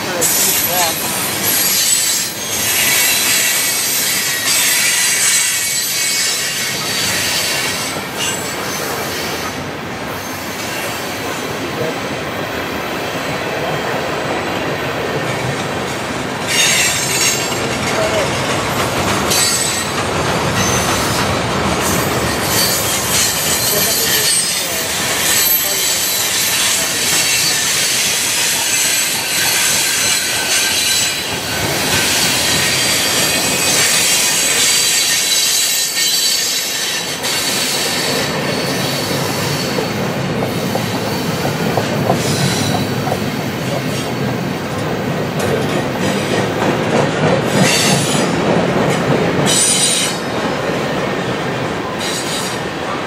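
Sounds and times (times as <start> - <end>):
train wheels rumbling on rails: 0.0 - 53.0
wheel squeal: 16.5 - 17.7, 20.6 - 41.4
wheels clickety-clack: 16.5 - 51.2.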